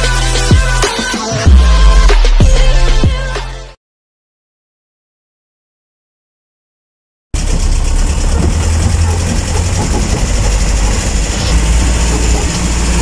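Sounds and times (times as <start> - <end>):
truck engine rumbling: 7.4 - 13.0.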